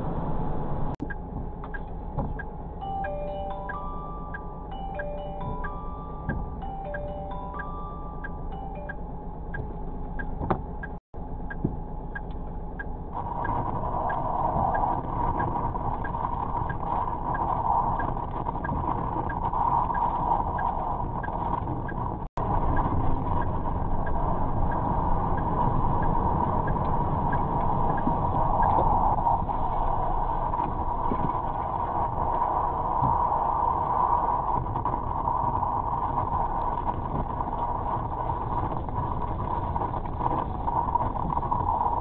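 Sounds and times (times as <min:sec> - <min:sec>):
steady rushing noise: 0:00.0 - 0:42.0
truck engine rumbling: 0:00.0 - 0:42.0
light repeating tick: 0:07.6 - 0:22.0, 0:22.7 - 0:28.8.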